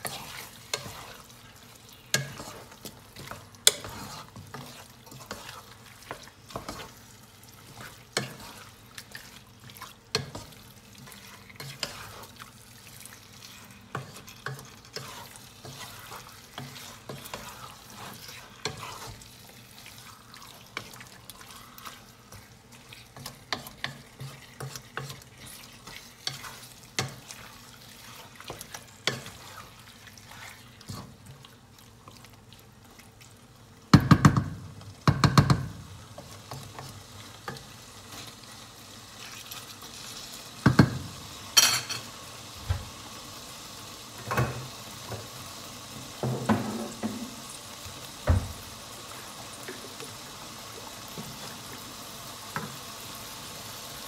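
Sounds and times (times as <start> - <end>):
spatula scraping a pan: 0.0 - 31.4
food sizzling: 0.0 - 54.0
loud knocks on a pan: 34.0 - 35.8.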